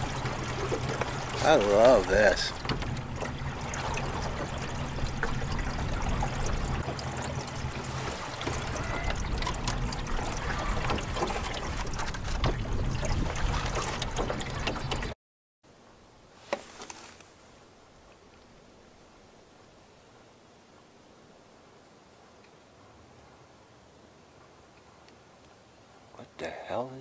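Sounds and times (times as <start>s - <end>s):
boat motor humming: 0.0s - 15.2s
water lapping along boat hull: 0.0s - 15.2s.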